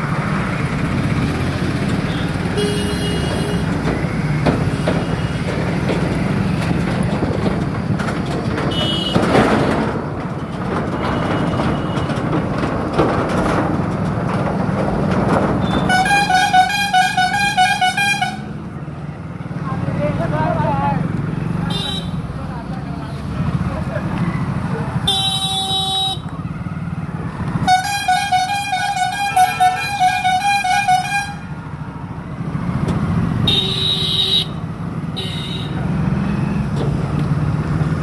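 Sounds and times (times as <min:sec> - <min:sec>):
car horn toots: 0:08.7 - 0:09.3, 0:15.6 - 0:18.5, 0:25.1 - 0:26.3, 0:27.6 - 0:31.5, 0:33.4 - 0:34.6, 0:35.2 - 0:35.8.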